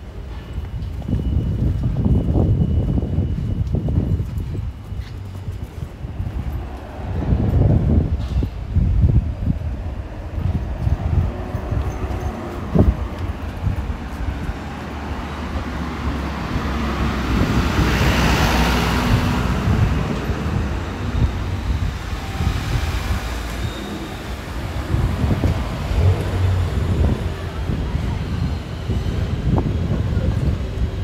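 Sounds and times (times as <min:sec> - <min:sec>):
low rumble of urban traffic: 0:00.0 - 0:31.0
vehicle passing by: 0:14.4 - 0:28.4.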